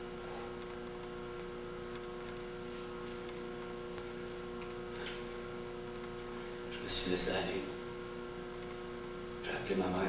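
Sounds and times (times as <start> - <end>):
electrical mains hum: 0.0 - 10.0.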